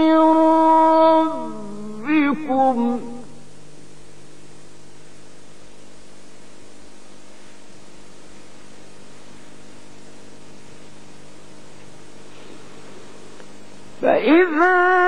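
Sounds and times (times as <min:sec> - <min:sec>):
low electrical hum: 0:00.0 - 0:15.0
steady hiss: 0:00.0 - 0:15.0.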